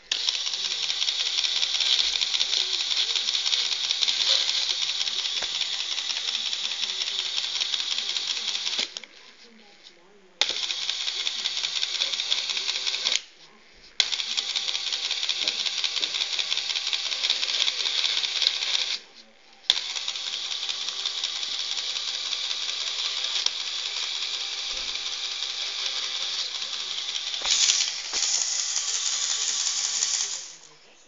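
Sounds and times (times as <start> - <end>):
paper shredder plastic rattle: 24.7 - 30.6.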